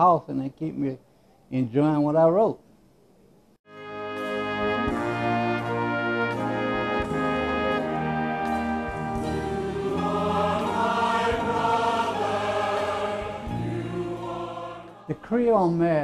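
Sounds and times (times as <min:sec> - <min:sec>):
orchestra chords with brass: 0:03.7 - 0:15.2
choir singing with vibrato: 0:04.3 - 0:15.8.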